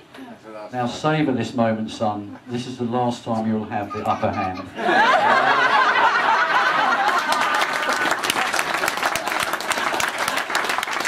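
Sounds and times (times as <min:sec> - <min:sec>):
guests laughing: 0:03.8 - 0:10.6
applause: 0:06.8 - 0:11.0.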